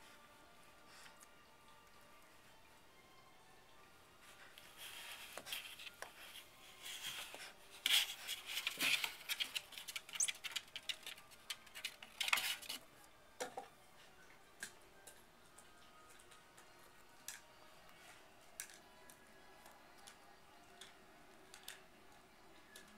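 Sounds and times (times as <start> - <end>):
claws scratching cardboard: 7.8 - 12.8.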